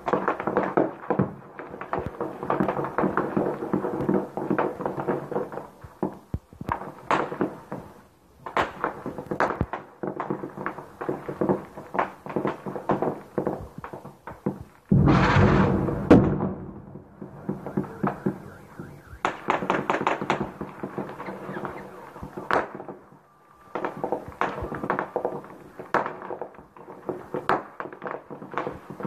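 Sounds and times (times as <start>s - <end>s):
sharp loud gunshots: 14.9s - 26.4s.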